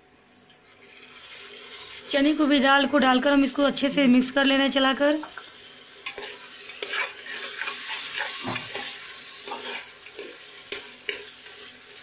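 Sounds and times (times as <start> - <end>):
food sizzling in oil: 0.6 - 12.0
metal spatula scraping a pot: 0.8 - 2.2, 6.0 - 11.8.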